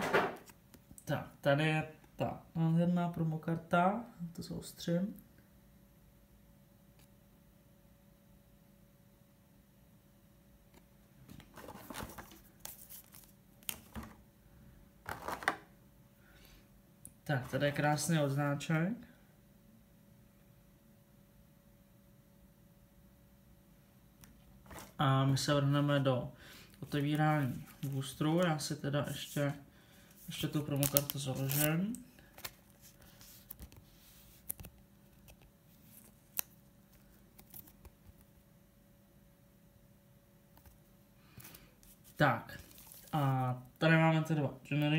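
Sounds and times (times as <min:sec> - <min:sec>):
plastic sleeve rustling: 0:11.3 - 0:14.2, 0:15.1 - 0:15.6, 0:24.6 - 0:25.0, 0:26.8 - 0:38.2, 0:41.4 - 0:43.6
plastic tray crinkling: 0:15.1 - 0:15.6.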